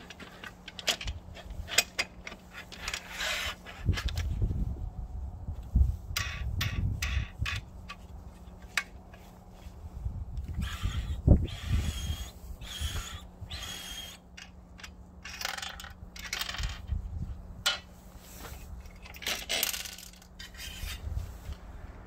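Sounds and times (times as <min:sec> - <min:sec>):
metal fence scraping and sliding: 0:18.1 - 0:22.0.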